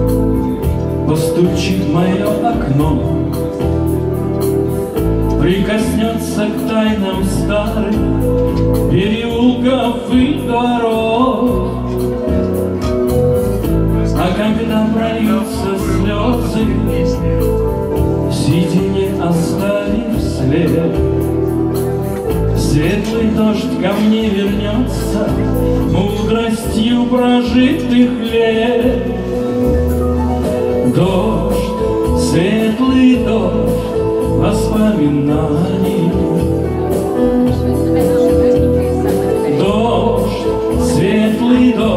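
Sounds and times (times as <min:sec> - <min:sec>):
man singing: 0:00.0 - 0:41.9.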